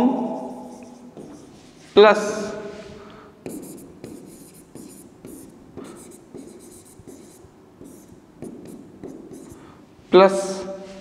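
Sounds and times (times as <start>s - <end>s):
scratchy writing strokes: 0.4s - 2.0s, 3.4s - 9.6s.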